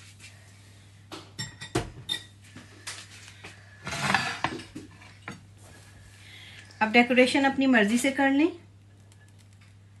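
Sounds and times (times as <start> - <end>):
kitchenware clinks and knocks: 3.9 - 4.9.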